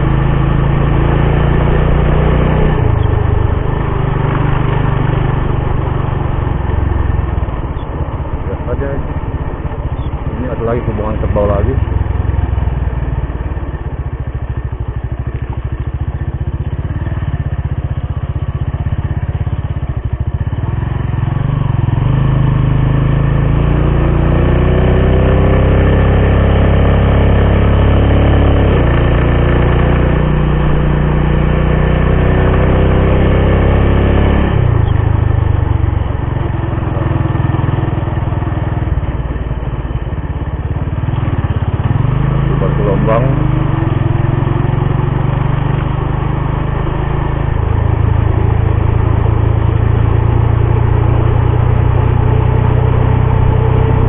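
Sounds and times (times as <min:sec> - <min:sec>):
road and wind rumble: 0:00.0 - 0:54.0
vehicle engine: 0:00.0 - 0:54.0.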